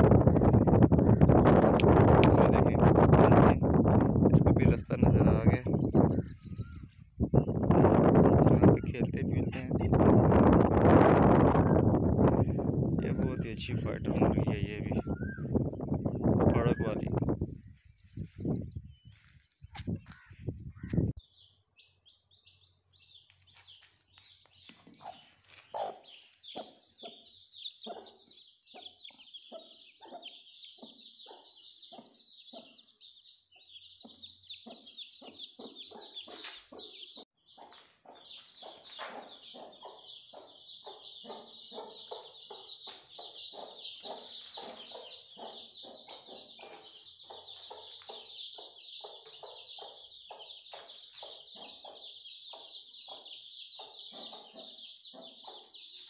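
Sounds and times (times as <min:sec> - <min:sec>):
chicks peeping: 0:00.0 - 0:56.0
hen clucking: 0:24.8 - 0:32.9, 0:33.6 - 0:56.0.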